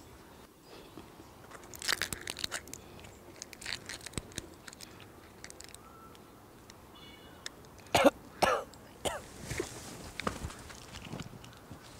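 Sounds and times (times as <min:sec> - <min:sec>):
blister pack crackling: 0:01.5 - 0:05.9.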